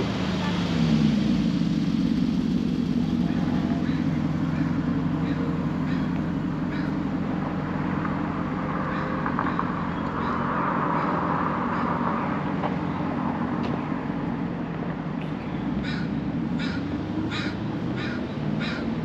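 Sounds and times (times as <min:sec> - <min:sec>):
low rumble of traffic: 0:00.0 - 0:19.0
vehicle passing close: 0:15.6 - 0:19.0.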